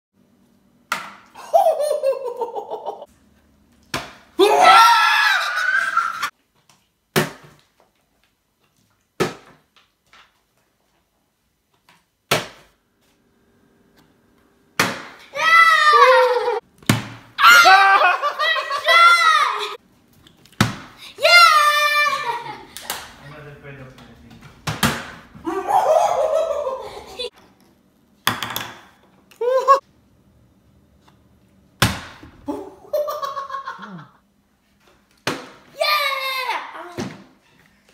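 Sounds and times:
person exclaiming: 4.4s - 6.2s, 15.4s - 16.6s, 17.4s - 19.8s, 29.4s - 29.8s.

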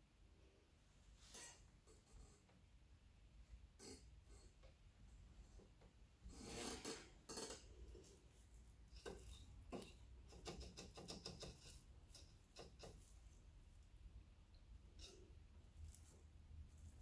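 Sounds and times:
rustling scrape: 6.2s - 13.5s, 14.9s - 17.0s.

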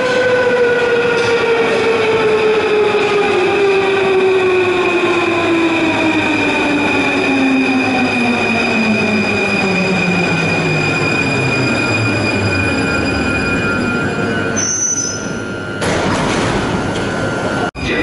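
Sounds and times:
steady high tone: 6.6s - 16.0s.

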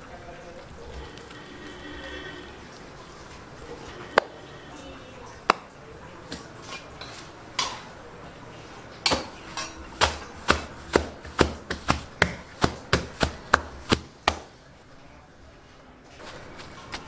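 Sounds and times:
hands slapping flatbread: 6.3s - 6.6s, 9.1s - 14.7s, 16.2s - 17.0s.

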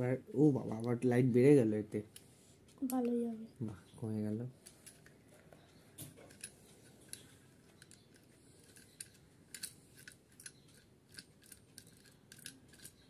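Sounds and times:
plastic tripod clicks and rattles: 6.0s - 13.0s.

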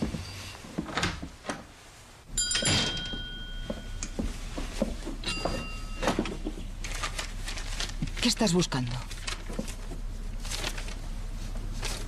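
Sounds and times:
small bell ringing: 2.4s - 4.1s, 5.2s - 6.2s
door thudding open: 2.5s - 3.3s.

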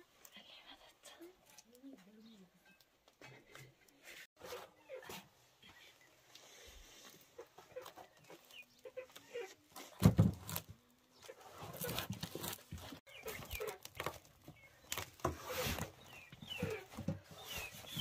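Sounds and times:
crusty bread crackling: 11.5s - 15.8s.

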